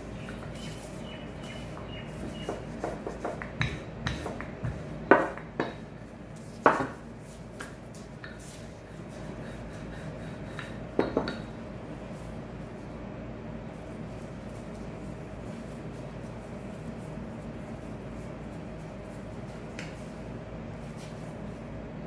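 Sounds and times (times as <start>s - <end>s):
rolling pin tapping countertop: 1.8s - 5.8s, 6.6s - 7.0s, 10.6s - 11.5s.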